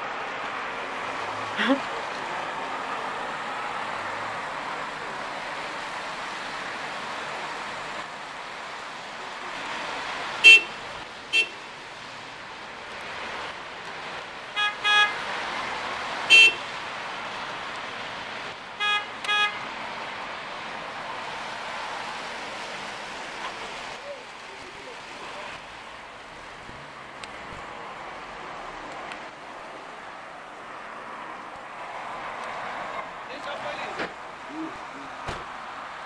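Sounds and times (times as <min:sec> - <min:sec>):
street noise: 0:00.0 - 0:36.0
car horns honking: 0:10.4 - 0:11.7, 0:14.5 - 0:15.3, 0:16.2 - 0:16.7, 0:18.8 - 0:19.7.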